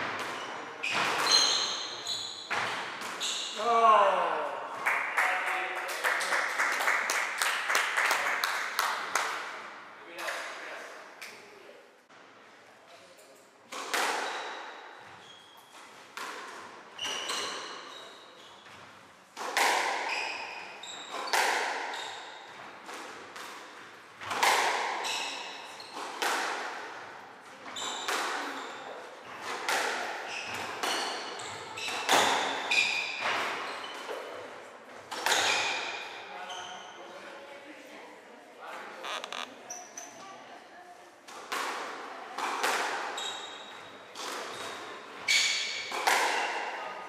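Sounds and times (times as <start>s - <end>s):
shoes squeaking on wooden floor: 0.3s - 2.5s, 39.0s - 40.2s
squash ball hits echoing: 19.4s - 27.1s, 29.4s - 33.7s, 41.3s - 43.2s, 45.6s - 46.8s.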